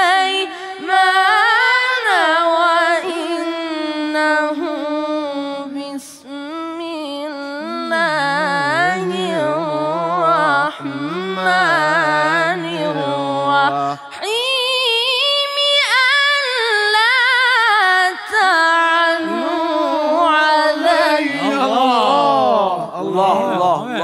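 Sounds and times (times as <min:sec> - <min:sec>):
boy chanting recitation: 0:07.4 - 0:14.2, 0:18.1 - 0:24.0.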